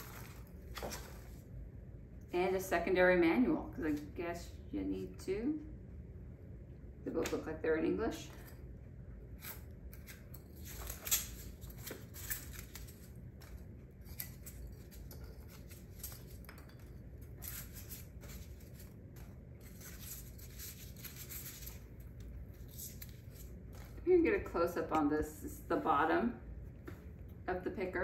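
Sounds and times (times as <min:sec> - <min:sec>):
foam packing peanuts rustling: 0:00.0 - 0:01.4.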